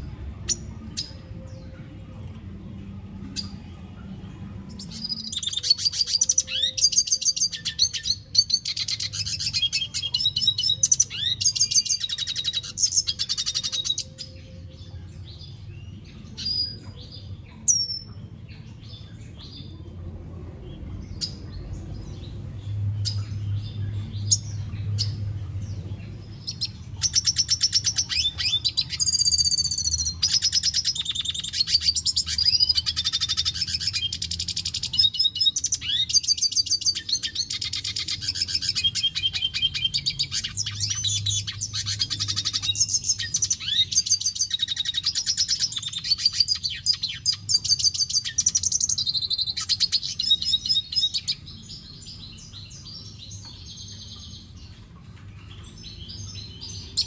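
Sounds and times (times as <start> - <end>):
bird singing twittering song: 0.0 - 57.0
steady low hum: 14.5 - 27.1.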